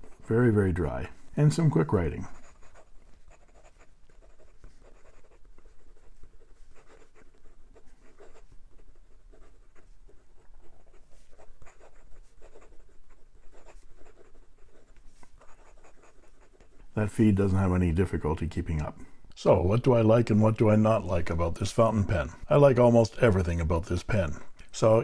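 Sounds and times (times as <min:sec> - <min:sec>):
pen nib scratching paper: 0:00.0 - 0:01.0, 0:01.6 - 0:17.0.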